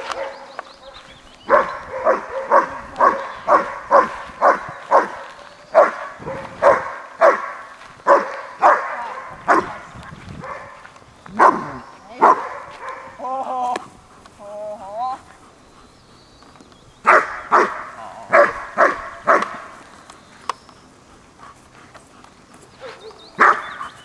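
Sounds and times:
dog barking loudly: 0.0 - 9.8, 10.4 - 10.8, 11.4 - 13.2, 17.0 - 19.8, 22.8 - 24.0.

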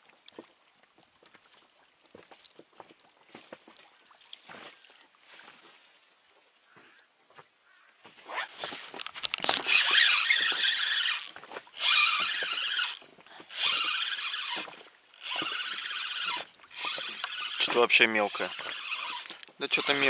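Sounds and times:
fishing reel squealing: 9.0 - 20.0.

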